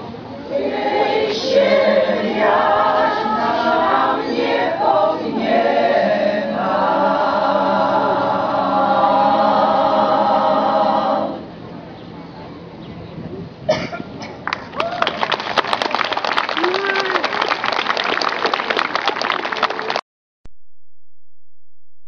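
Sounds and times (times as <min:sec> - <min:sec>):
women's choir singing: 0:00.5 - 0:11.6.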